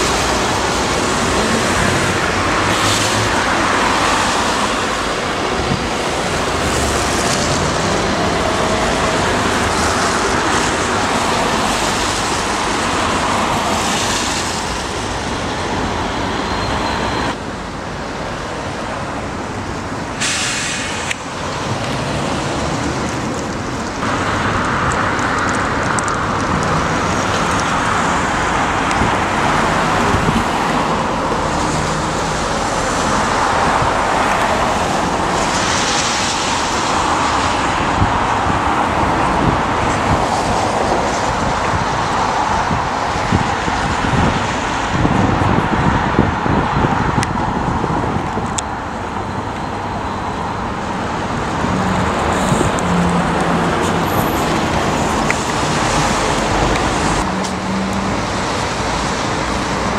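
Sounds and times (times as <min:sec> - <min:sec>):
road traffic passing: 0:00.0 - 0:59.9.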